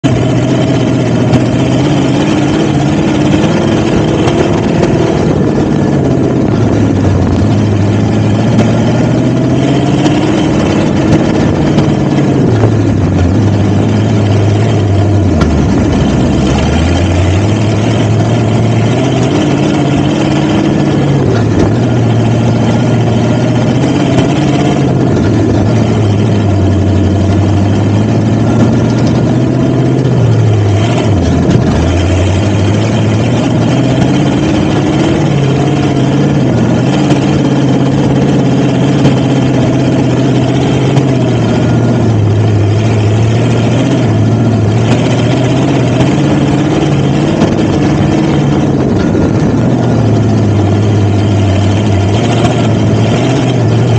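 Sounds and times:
off-road vehicle engine running: 0.0s - 53.9s.

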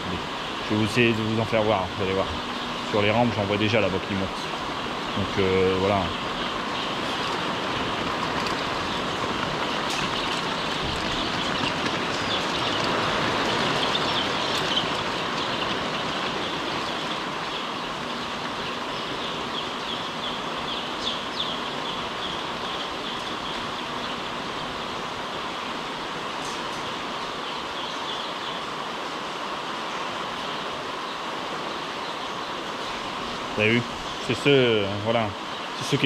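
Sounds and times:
poultry house background noise: 0.0s - 36.0s
chicks peeping: 0.1s - 28.6s.

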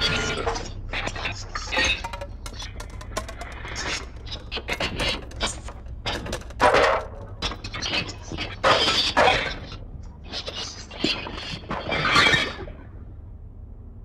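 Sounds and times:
low hum: 0.0s - 14.0s
clicks and clatters: 1.6s - 11.9s.

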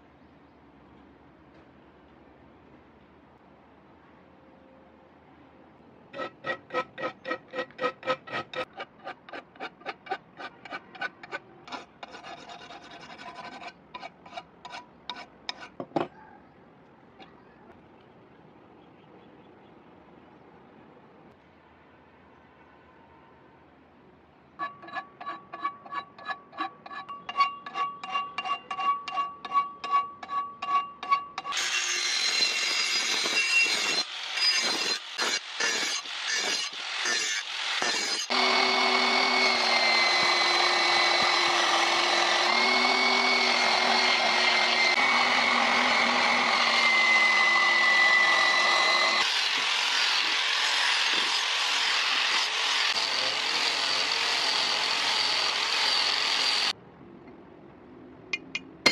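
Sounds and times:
scraping on steel blade: 6.1s - 16.0s, 24.6s - 38.3s
belt sander whining: 38.2s - 49.8s.

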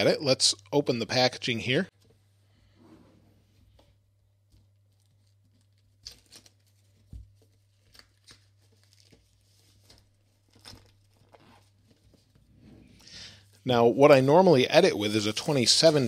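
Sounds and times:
shrink-wrap crackling as peeled: 4.9s - 6.9s, 7.7s - 11.6s.

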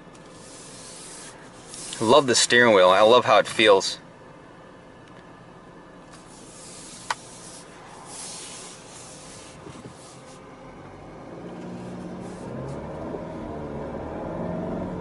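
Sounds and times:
rubbing on microphone: 0.3s - 2.4s, 6.2s - 10.4s
car engine accelerating: 7.8s - 15.0s.

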